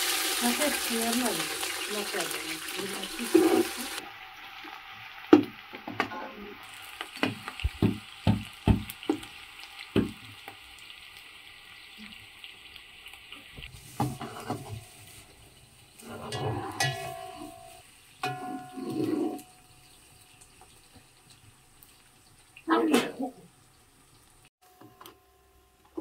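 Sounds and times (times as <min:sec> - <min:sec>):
utensils knocking in a pot: 0:16.0 - 0:19.6.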